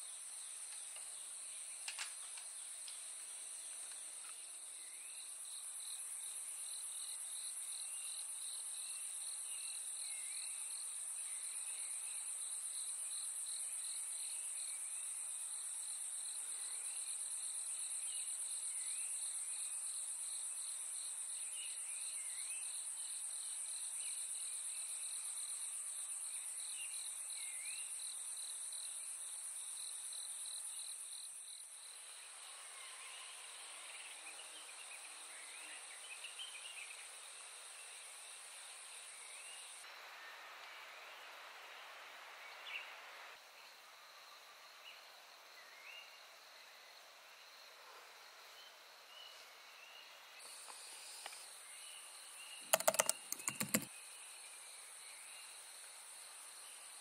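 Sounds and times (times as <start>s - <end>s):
short insect chirps: 50.4s - 54.3s.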